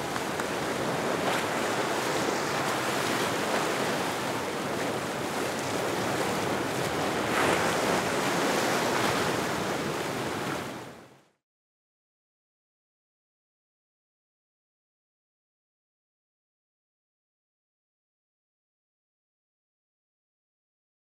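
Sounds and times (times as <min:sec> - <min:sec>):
water washing and slapping: 0:00.0 - 0:10.4.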